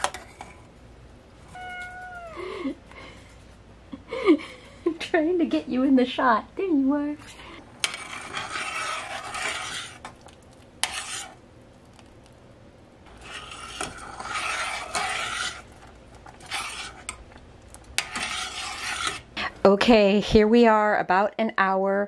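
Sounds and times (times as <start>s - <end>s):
metal spoon scraping pot: 7.2s - 10.1s, 10.8s - 11.4s, 13.1s - 17.2s, 18.0s - 19.3s.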